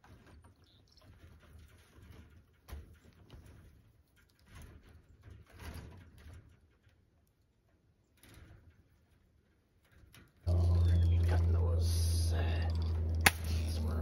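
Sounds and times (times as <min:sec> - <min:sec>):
rustling and handling of fencing: 0:00.0 - 0:14.0.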